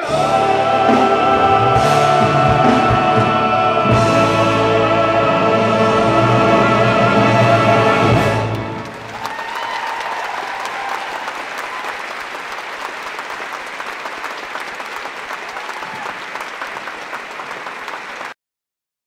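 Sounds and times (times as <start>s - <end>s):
audience applauding: 8.1s - 18.4s.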